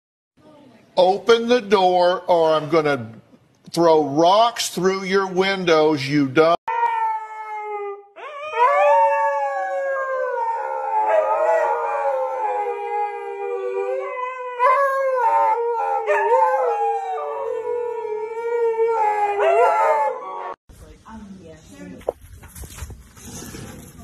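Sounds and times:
huskies howling: 7.1 - 20.6.

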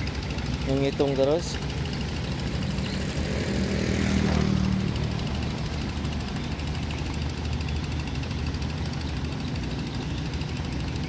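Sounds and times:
low engine drone: 0.0 - 11.0
engine sweeping past: 1.5 - 7.6.

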